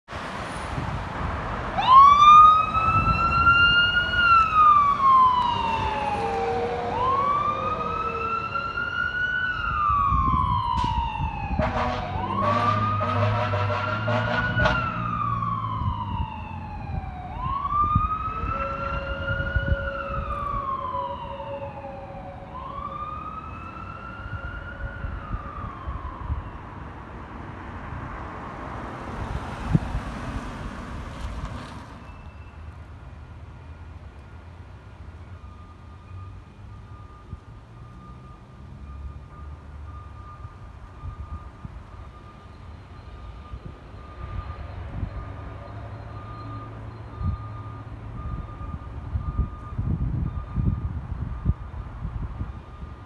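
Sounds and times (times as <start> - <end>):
siren wailing: 1.8 - 26.9, 35.2 - 51.8
low air horn blasts: 11.5 - 15.0, 18.3 - 20.6.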